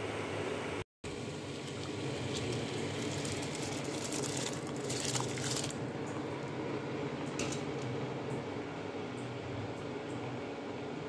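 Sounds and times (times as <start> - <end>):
rice pouring into water splashing: 1.5 - 5.8.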